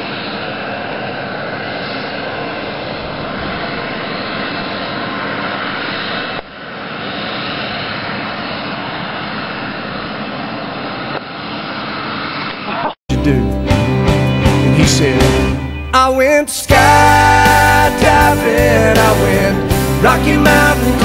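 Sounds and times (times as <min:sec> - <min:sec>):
aircraft engine drone: 0:00.0 - 0:21.0.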